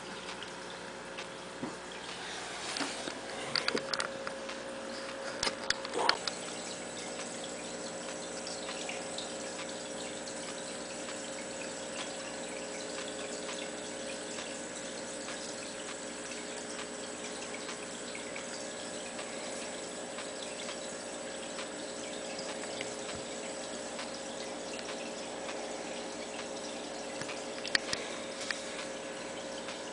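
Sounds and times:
aquarium water trickling and bubbling: 0:00.0 - 0:29.9
faint hum: 0:00.0 - 0:29.9.

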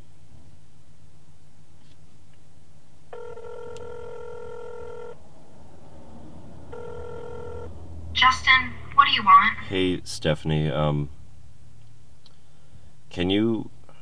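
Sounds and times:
telephone ringback tone: 0:03.1 - 0:05.2, 0:06.7 - 0:07.7.

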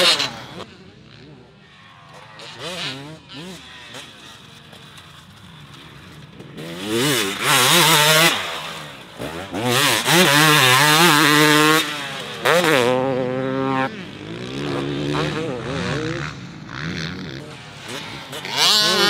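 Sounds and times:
motocross bike revving past: 0:00.0 - 0:19.0.

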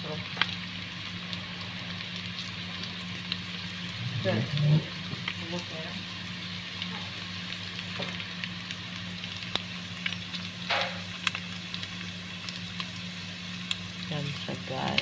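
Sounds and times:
meat sizzling in a pot: 0:00.0 - 0:15.0
steady low hum: 0:00.0 - 0:15.0.

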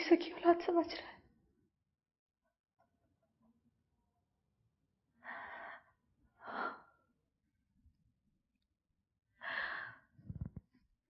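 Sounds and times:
person breathing heavily: 0:09.4 - 0:10.2.

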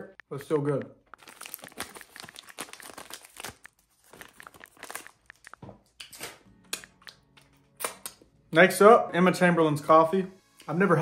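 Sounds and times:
candy wrapper crinkling: 0:00.3 - 0:07.2.

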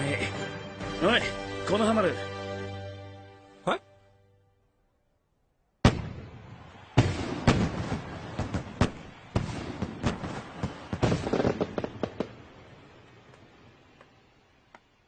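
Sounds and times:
fireworks bangs and pops: 0:05.8 - 0:14.9.

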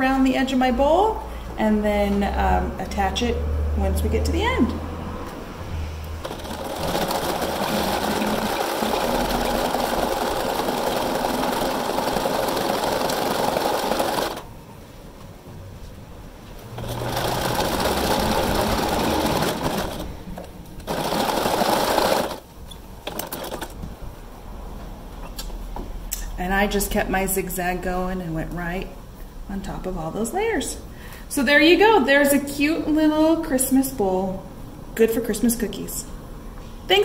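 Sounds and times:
sewing machine stitching: 0:06.2 - 0:14.5, 0:16.6 - 0:20.2, 0:20.8 - 0:23.8.

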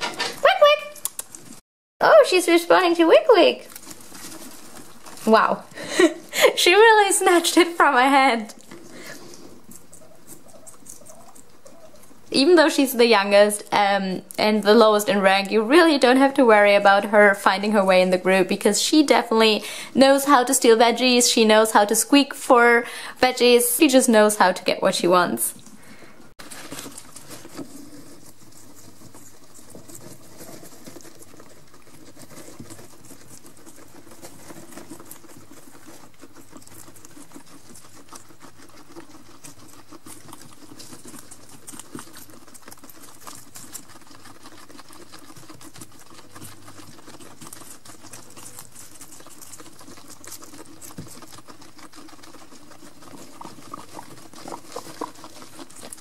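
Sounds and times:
guinea pigs chewing cucumber: 0:00.0 - 0:56.0
rustling in wood shavings: 0:02.3 - 0:13.5, 0:26.4 - 0:56.0.

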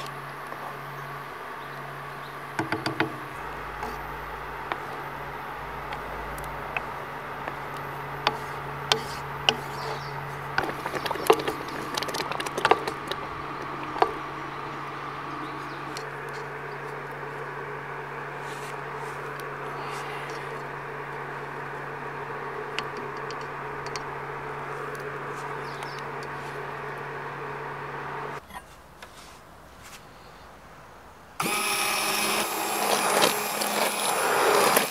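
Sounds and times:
induction hob humming: 0:00.0 - 0:28.4, 0:31.4 - 0:34.9
wooden spoon scraping a pot: 0:02.9 - 0:28.3.

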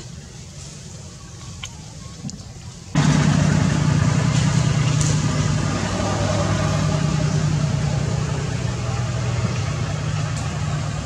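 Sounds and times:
engine humming: 0:02.7 - 0:11.0.

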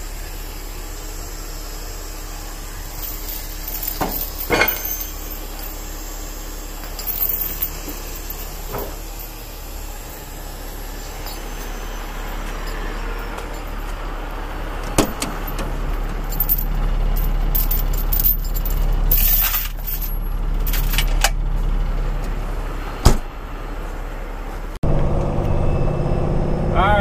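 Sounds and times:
truck engine humming: 0:00.0 - 0:27.0
metallic rattling and jingling: 0:02.8 - 0:21.4.

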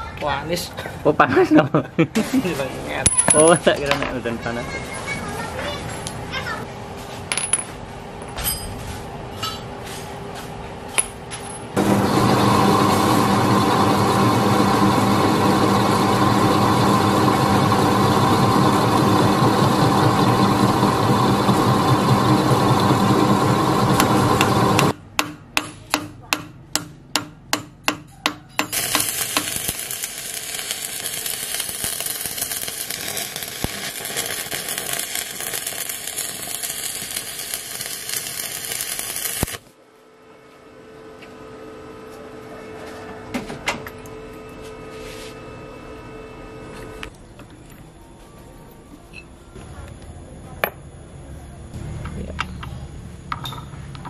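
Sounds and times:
metal lathe running: 0:11.8 - 0:25.0, 0:28.7 - 0:39.6
arc welding crackling hiss: 0:28.7 - 0:39.7.

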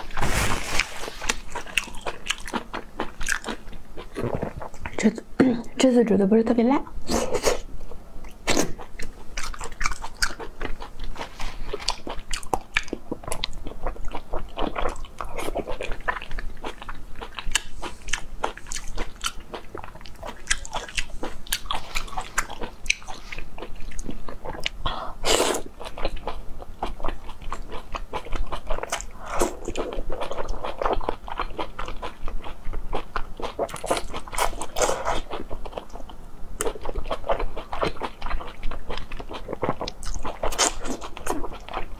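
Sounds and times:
person chewing: 0:00.0 - 0:05.0, 0:08.3 - 0:41.9.

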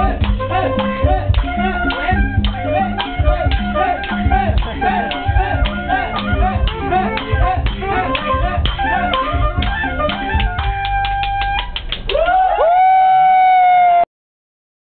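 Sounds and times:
hand drum beating: 0:00.0 - 0:11.7
wind instrument melody: 0:00.0 - 0:11.9.

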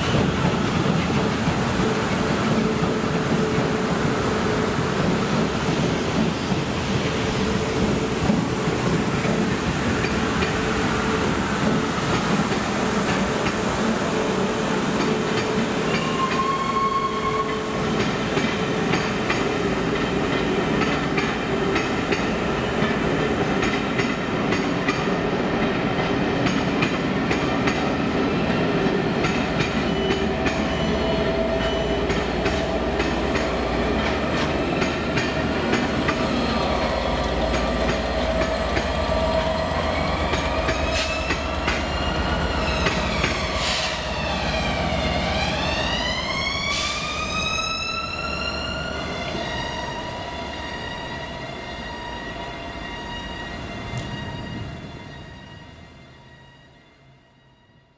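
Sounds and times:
train wheels clicking over rail joints: 0:00.0 - 0:13.7, 0:17.9 - 0:28.2, 0:28.8 - 0:44.6
electric train passing: 0:00.0 - 0:57.9.

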